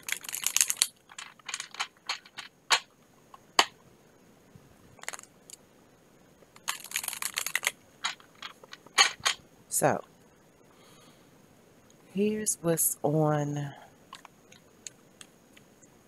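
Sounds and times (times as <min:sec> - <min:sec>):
cards being shuffled: 0:00.0 - 0:02.9, 0:05.0 - 0:05.3, 0:06.6 - 0:09.4.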